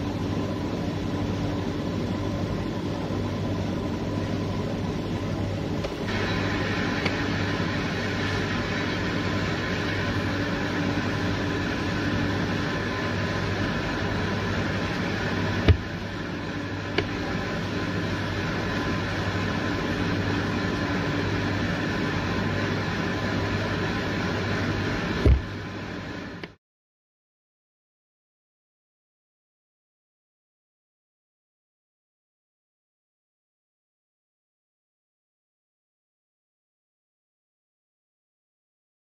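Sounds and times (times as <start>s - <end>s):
machine humming: 0.0s - 26.6s.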